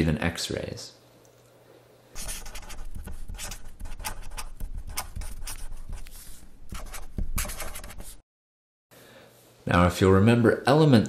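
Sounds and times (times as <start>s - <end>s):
marker pen scratching: 2.2s - 8.2s.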